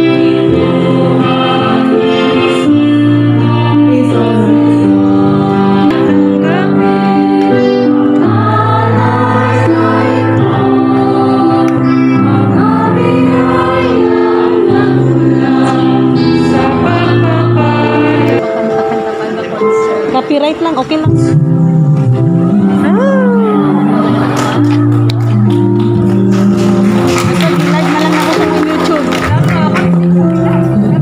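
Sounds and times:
choir singing a hymn: 0:00.0 - 0:20.0, 0:23.6 - 0:25.0
instrumental accompaniment: 0:00.0 - 0:31.0.

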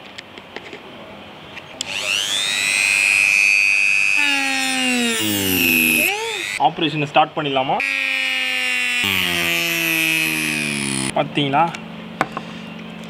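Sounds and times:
rotary tool motor whine: 0:01.8 - 0:06.6, 0:07.8 - 0:11.1
low falling tone: 0:04.2 - 0:06.6, 0:09.0 - 0:11.1.

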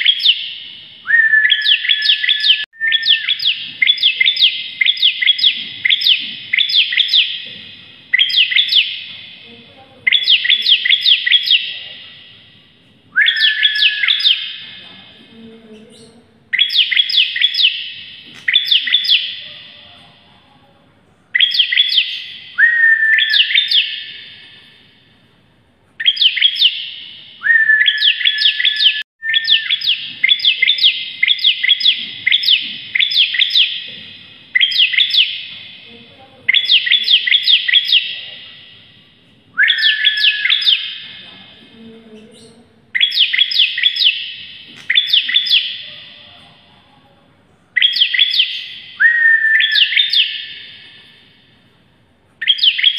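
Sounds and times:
bird singing sharp high chirps: 0:00.0 - 0:07.5, 0:08.1 - 0:09.1, 0:10.1 - 0:12.4, 0:13.1 - 0:14.7, 0:16.5 - 0:19.8, 0:21.4 - 0:24.7, 0:26.0 - 0:33.9, 0:34.5 - 0:35.8, 0:36.5 - 0:38.3, 0:39.6 - 0:41.1, 0:42.4 - 0:46.2, 0:47.8 - 0:51.2, 0:52.4 - 0:52.9.

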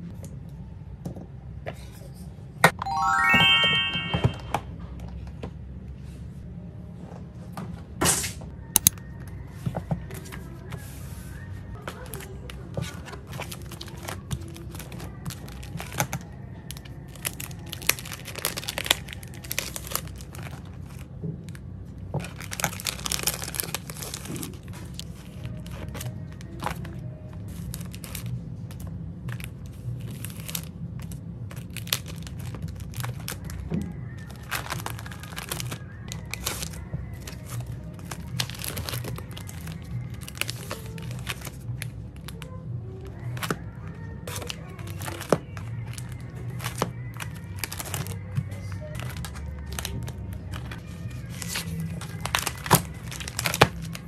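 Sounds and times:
plastic sleeves crinkling: 0:22.2 - 0:26.9, 0:34.2 - 0:42.4, 0:48.9 - 0:54.0.

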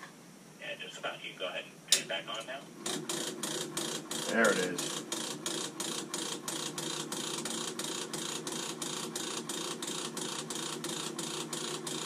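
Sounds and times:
boiler motor ratcheting clatter: 0:02.8 - 0:12.0.

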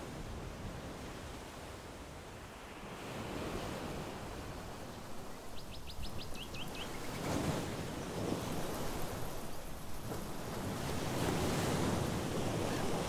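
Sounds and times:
wind: 0:00.0 - 0:13.0
songbird chirping: 0:04.9 - 0:08.1.

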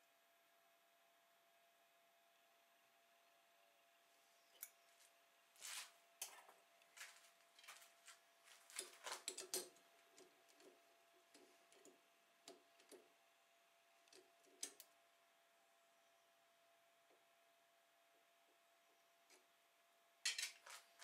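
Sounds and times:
faint steady tone: 0:09.9 - 0:20.2.

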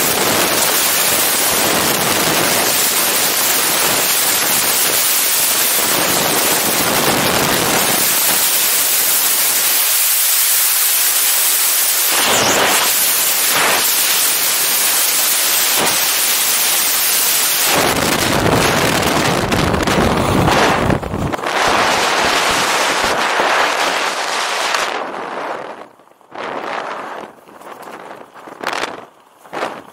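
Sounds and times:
freefall wind buffeting microphone: 0:00.0 - 0:09.6, 0:11.4 - 0:29.9.

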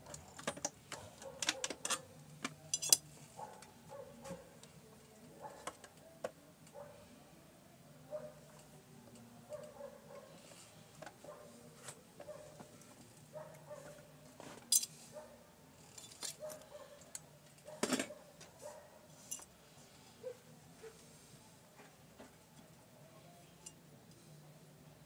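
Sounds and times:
light metallic clicks and clinks: 0:00.0 - 0:03.1, 0:19.2 - 0:19.5.

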